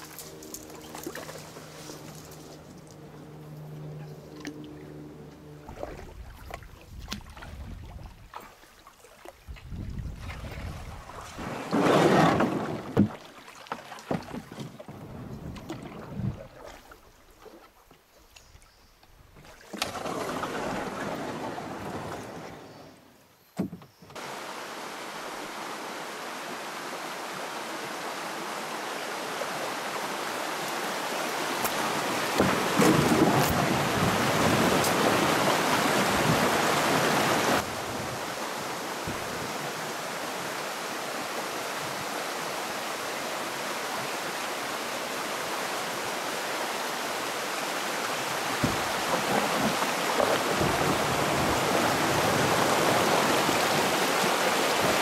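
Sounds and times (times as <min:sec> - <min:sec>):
water rushing over rocks: 0:24.2 - 0:55.0.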